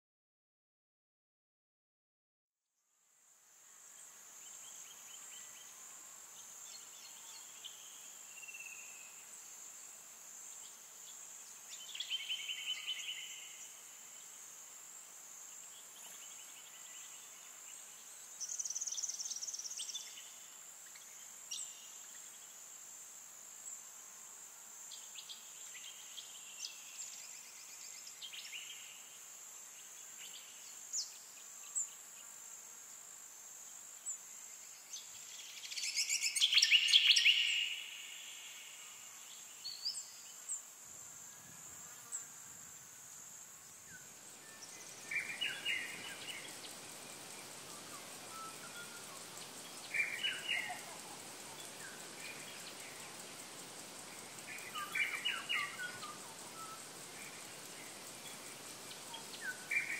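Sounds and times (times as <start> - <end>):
high-pitched insect drone: 32.8 - 59.9
birds chirping trills: 44.2 - 59.9.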